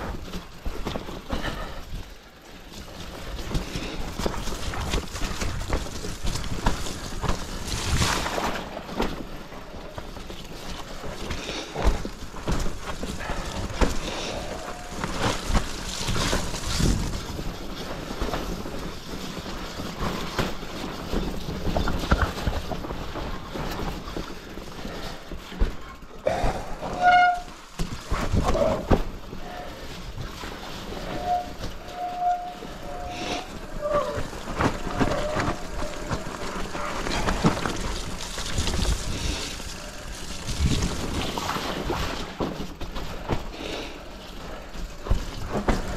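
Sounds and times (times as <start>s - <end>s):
bike clattering over bumps: 0.0s - 45.9s
bike tyres rolling over dirt: 0.0s - 45.9s
brake squeal: 30.7s - 36.7s.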